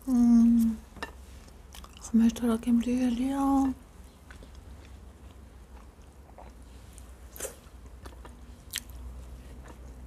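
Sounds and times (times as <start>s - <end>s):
person chewing: 1.4s - 2.1s, 4.0s - 10.0s.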